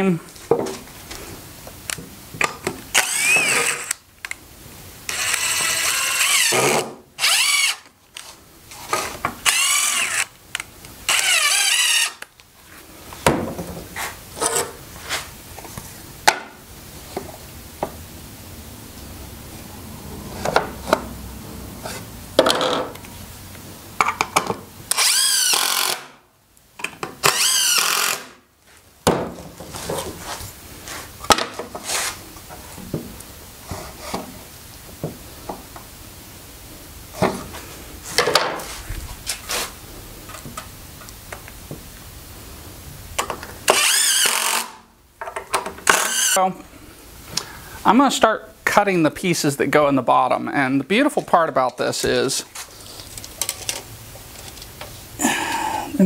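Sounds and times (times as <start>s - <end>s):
wood and tools clattering: 0.4s - 1.2s, 37.2s - 39.4s, 51.2s - 54.9s
power drill driving screws: 2.9s - 4.0s, 5.1s - 7.9s, 9.4s - 10.4s, 11.1s - 12.3s, 24.9s - 26.2s, 27.2s - 28.4s, 43.7s - 44.8s, 45.8s - 46.4s.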